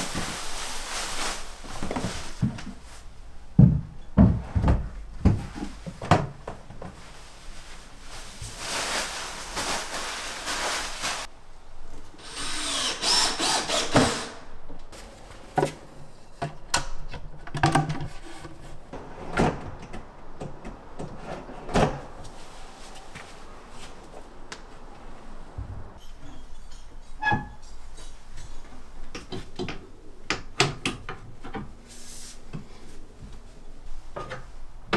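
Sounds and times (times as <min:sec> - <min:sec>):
power drill running: 0:12.2 - 0:14.4.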